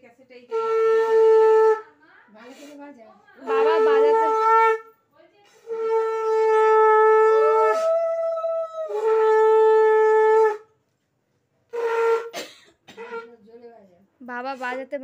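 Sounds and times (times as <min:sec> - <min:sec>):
conch shell blast: 0:00.5 - 0:01.8, 0:11.7 - 0:13.3.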